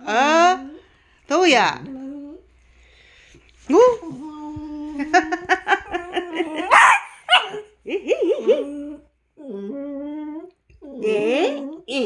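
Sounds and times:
small dog growling and whining: 5.9s - 11.9s
dog barking sharply: 6.7s - 7.6s.

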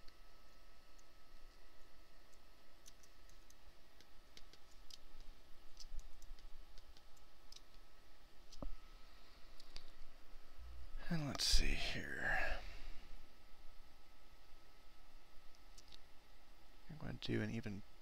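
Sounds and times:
faint high whine: 0.0s - 18.0s
low hum: 0.0s - 18.0s
mouse and key clicks: 2.3s - 7.8s.

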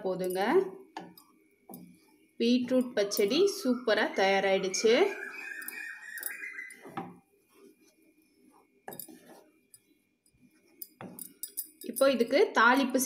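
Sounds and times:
spatula scraping wet mixture: 1.8s - 9.6s.

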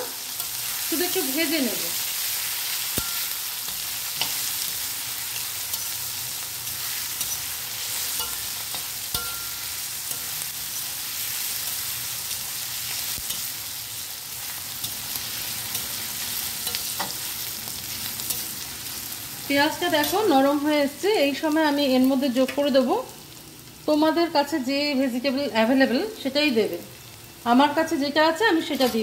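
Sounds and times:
onions sizzling in oil: 0.0s - 29.0s
metal spatula scraping pan: 2.7s - 13.5s.

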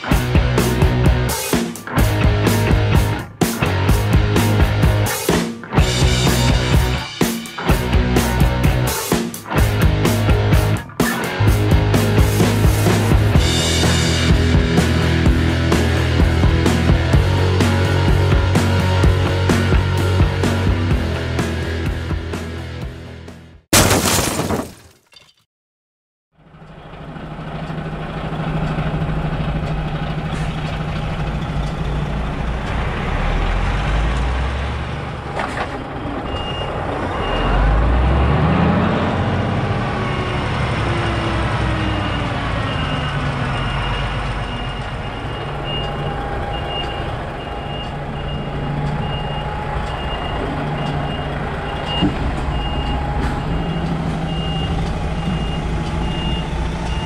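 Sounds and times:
diesel truck engine running: 11.4s - 23.1s, 26.4s - 57.0s
reversing alarm beeping: 36.3s - 37.8s, 39.8s - 57.0s.

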